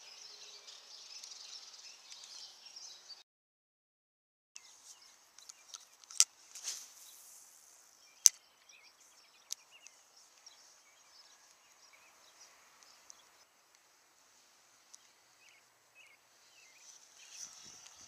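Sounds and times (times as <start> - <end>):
faint high hiss with chirps: 4.6 - 18.0
reel bail snapping closed: 5.4 - 6.8.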